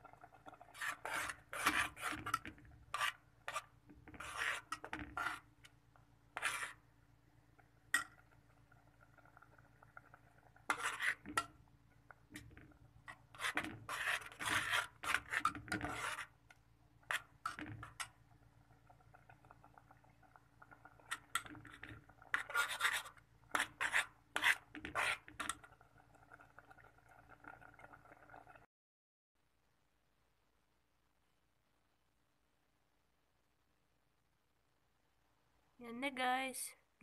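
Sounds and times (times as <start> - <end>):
metal spoon scraping metal pot: 0.3 - 5.5, 6.4 - 6.8, 10.0 - 11.6, 12.3 - 16.3, 20.9 - 25.7.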